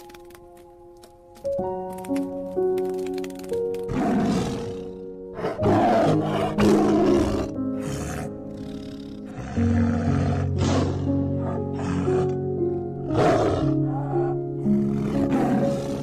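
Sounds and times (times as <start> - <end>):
soft sustained music: 0.0 - 16.0
tiger growling and snarling: 3.6 - 16.0.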